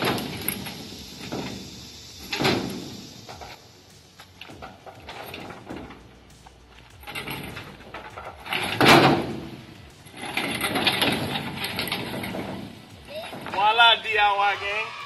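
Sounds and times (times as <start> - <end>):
loud metal clunk: 0.0 - 3.6, 4.4 - 6.2, 7.0 - 13.6
hoist rolling on gravel: 0.0 - 14.9
metal rattling and scraping: 0.0 - 14.9.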